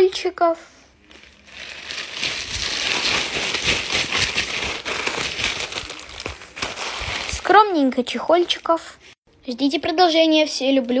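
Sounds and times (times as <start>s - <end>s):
plastic bags crinkling: 1.0s - 8.6s.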